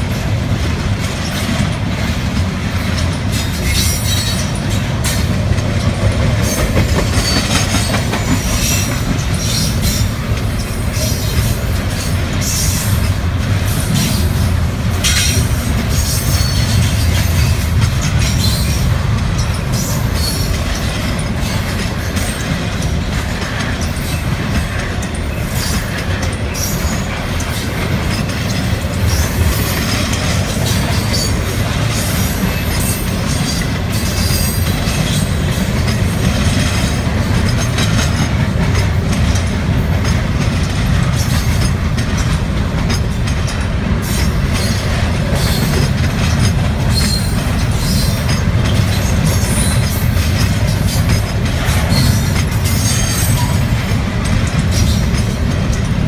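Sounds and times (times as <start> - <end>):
train wheels rumbling on rail: 0.0 - 56.0
high wheel squeals: 46.9 - 48.2.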